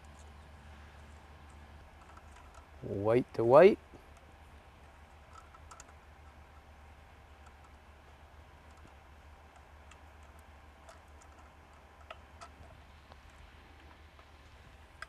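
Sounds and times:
low steady hum: 0.0 - 15.0
clicks of plastic wire nuts: 5.3 - 6.6, 8.6 - 14.3.

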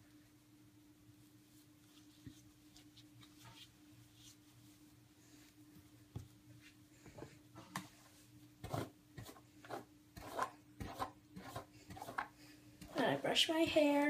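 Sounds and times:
faint steady hum: 0.0 - 14.0
hair brushing rustling strokes: 1.2 - 6.8.

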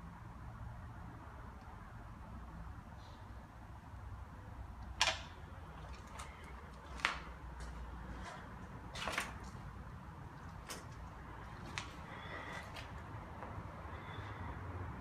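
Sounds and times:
sharp clicks: 4.8 - 5.4.

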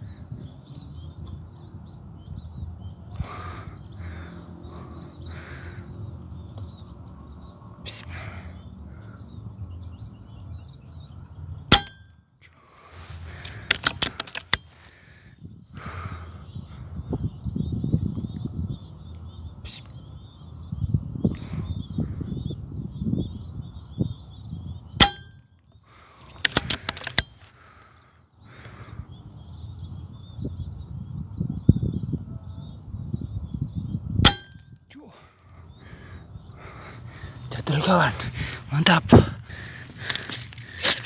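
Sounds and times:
metallic clicks: 26.4 - 27.4.

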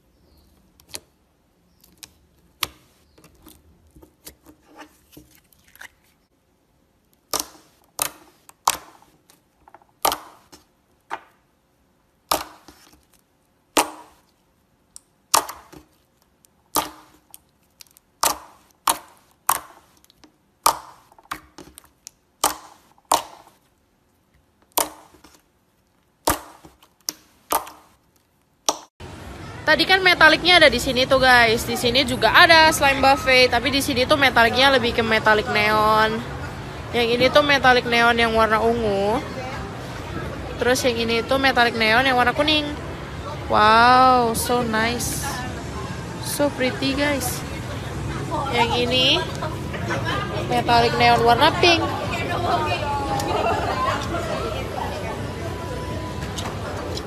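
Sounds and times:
slime crackling: 12.2 - 28.9.

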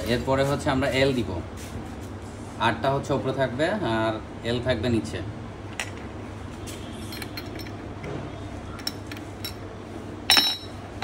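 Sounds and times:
ringing metal clink: 10.3 - 10.8.

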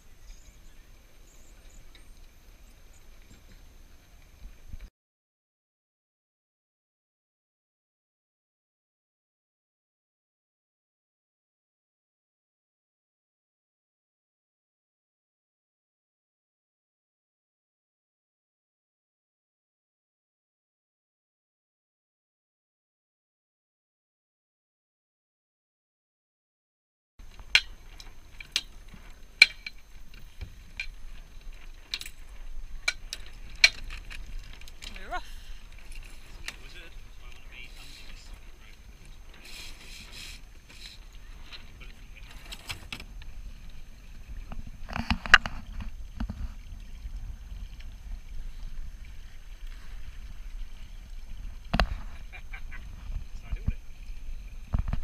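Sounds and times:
low steady rumble: 27.2 - 55.0
water washing along hulls: 27.2 - 55.0
gear clinking against rigging: 27.3 - 43.0.

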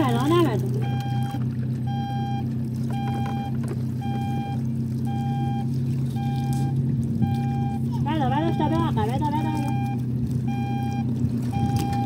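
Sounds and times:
electronic beeps: 8.5 - 12.0.

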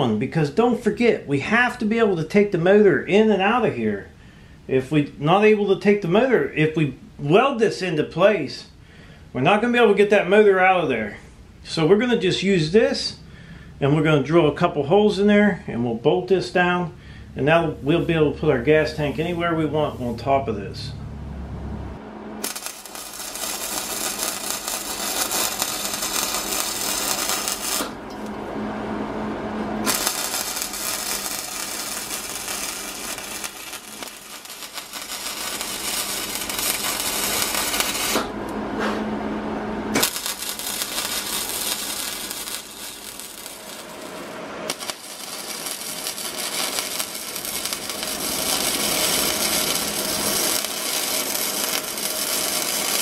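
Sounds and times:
welding arc crackling: 22.4 - 28.4, 29.8 - 38.5, 39.9 - 53.0.

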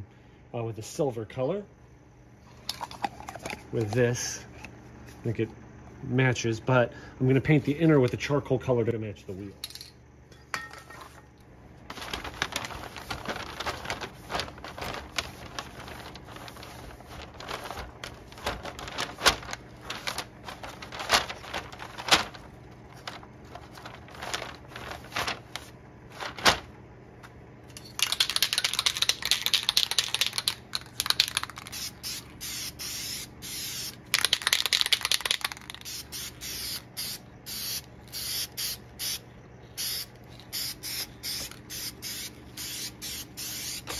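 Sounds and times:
aerosol can ball rattling: 27.9 - 32.2, 34.1 - 36.3.

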